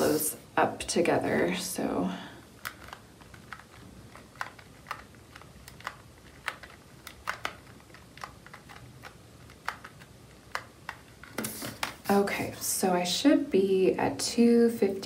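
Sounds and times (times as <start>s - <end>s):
calculator keys clicking: 2.6s - 11.1s.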